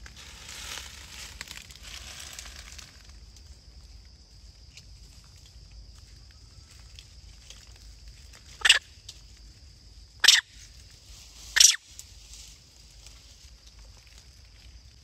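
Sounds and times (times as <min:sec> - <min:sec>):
high insect drone: 0:00.0 - 0:15.0
monkey squealing: 0:08.6 - 0:08.8, 0:10.2 - 0:10.5, 0:11.6 - 0:11.8.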